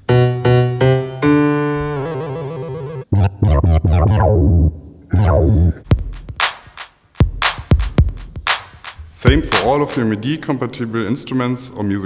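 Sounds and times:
held synthesizer chord: 0:00.0 - 0:05.8
synthesizer notes: 0:00.0 - 0:06.5.

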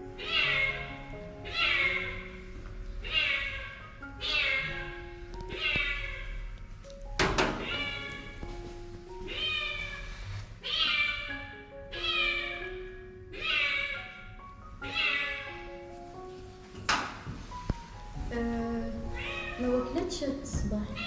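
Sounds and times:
background music: 0:00.0 - 0:21.0
cat meowing: 0:00.2 - 0:02.3, 0:03.0 - 0:06.5, 0:07.6 - 0:08.4, 0:09.2 - 0:15.6, 0:19.0 - 0:19.6
knock: 0:07.2 - 0:07.8.

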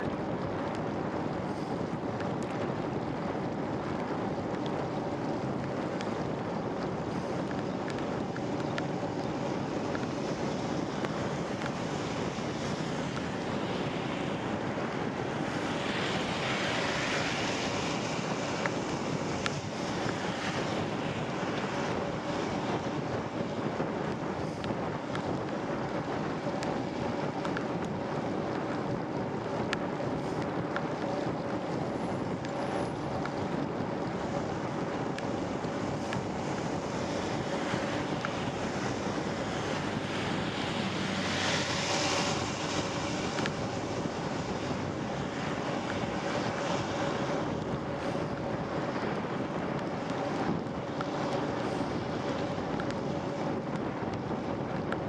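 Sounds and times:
wind buffeting microphone: 0:00.0 - 0:55.0
tyre hiss on wet road: 0:01.4 - 0:01.8, 0:15.3 - 0:22.6, 0:35.9 - 0:47.3, 0:51.6 - 0:52.1.

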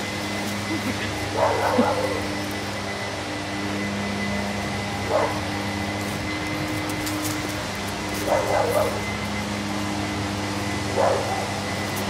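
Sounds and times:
steady hum: 0:00.0 - 0:12.0
dogs barking: 0:00.7 - 0:02.6, 0:05.0 - 0:05.7, 0:08.0 - 0:09.3, 0:10.8 - 0:12.0.

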